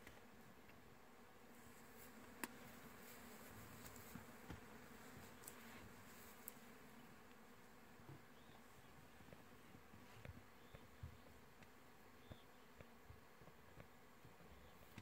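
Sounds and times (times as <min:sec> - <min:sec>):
faint steady buzz: 0:00.0 - 0:15.0.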